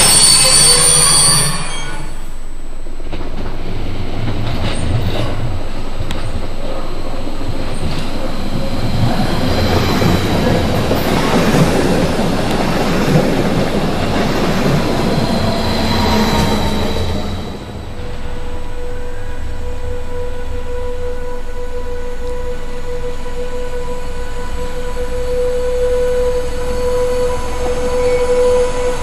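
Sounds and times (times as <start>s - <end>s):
thin high tone: 0.0s - 2.6s, 7.8s - 29.0s
train wheels rumbling on rails: 0.0s - 29.0s.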